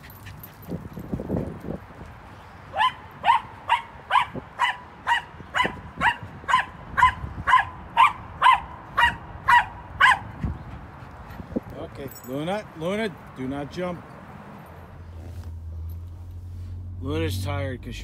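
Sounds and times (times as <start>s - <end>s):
dog barking high-pitched: 2.7s - 10.4s.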